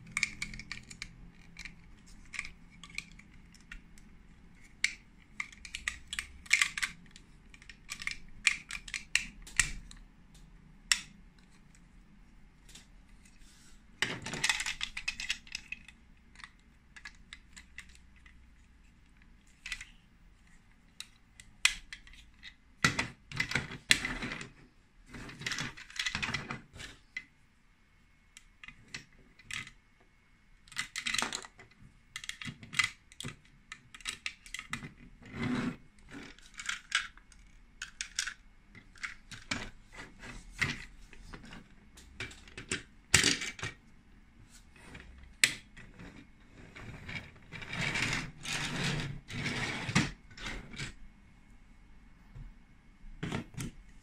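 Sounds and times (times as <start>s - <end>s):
plastic toy bricks clicking: 0.0s - 10.0s, 10.8s - 11.6s, 14.0s - 18.5s, 19.2s - 20.0s, 21.0s - 24.5s, 30.6s - 35.0s, 36.0s - 39.7s.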